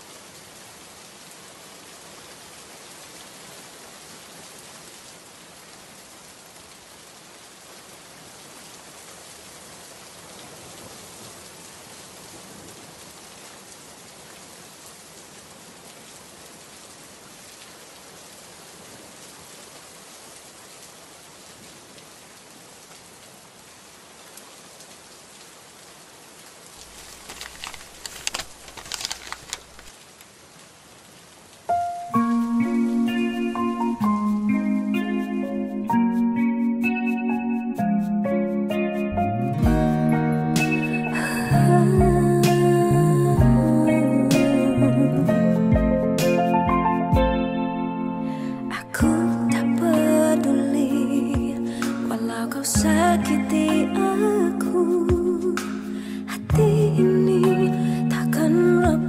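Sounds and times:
steady rain: 0.0s - 59.0s
sharp crackles: 26.7s - 30.4s.

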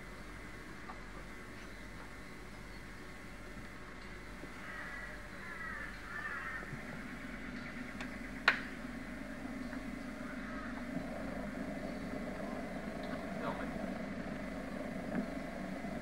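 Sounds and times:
low steady hum: 0.0s - 16.0s
crow cawing: 4.6s - 6.8s, 10.2s - 10.8s.

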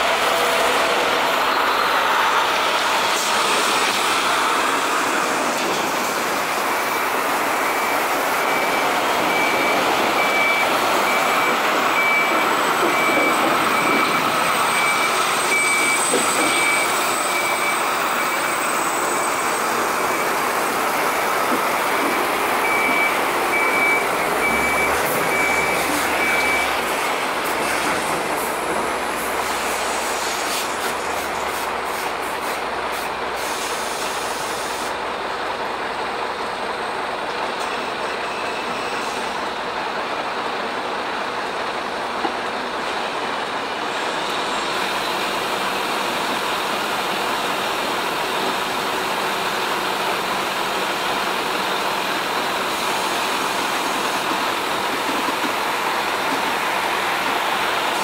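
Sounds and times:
diesel truck engine running: 3.5s - 30.1s.

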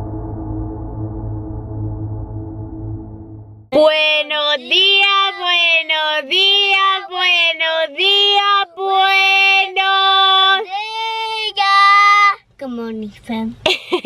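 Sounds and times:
woman and boy singing: 3.8s - 10.7s.

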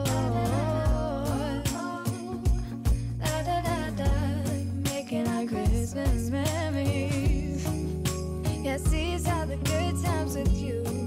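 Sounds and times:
steady drum beat: 0.0s - 8.2s, 8.9s - 9.9s
woman singing pop song: 0.0s - 11.0s.

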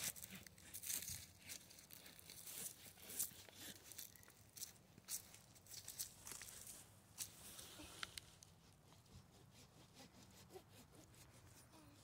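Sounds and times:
faint hand saw rasping through wood: 8.6s - 12.0s.

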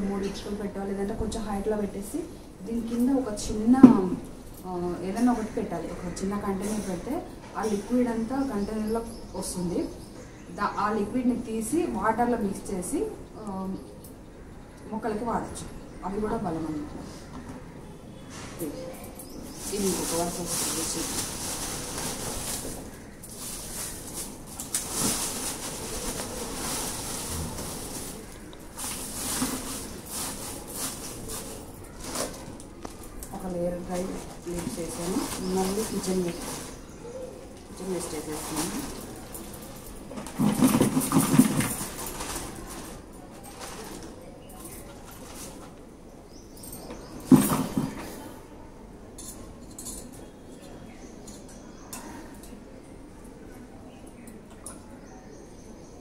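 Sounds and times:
dry leaves rustling and crackling: 19.3s - 45.8s.

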